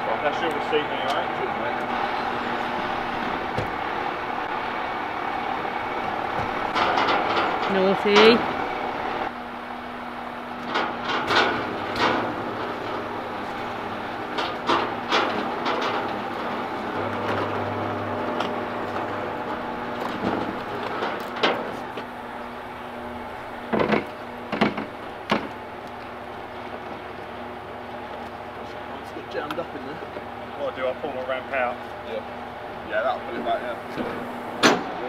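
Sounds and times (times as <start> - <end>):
lorry engine humming: 0.0 - 35.0
metallic clunks and knocks: 6.0 - 8.8, 10.6 - 13.6, 14.2 - 17.7, 23.7 - 25.6, 34.0 - 35.0.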